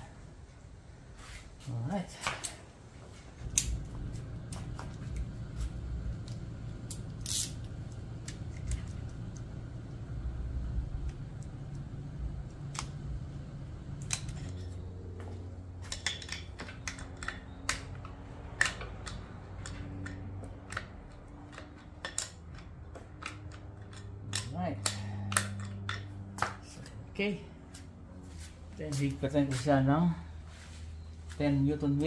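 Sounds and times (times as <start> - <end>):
low steady hum: 0.0 - 32.0
small metallic clicks and taps: 15.8 - 27.0.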